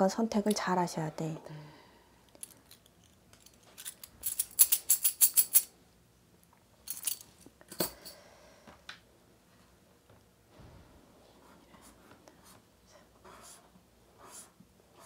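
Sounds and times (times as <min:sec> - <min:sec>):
small metal pieces clinking: 0:02.4 - 0:05.7.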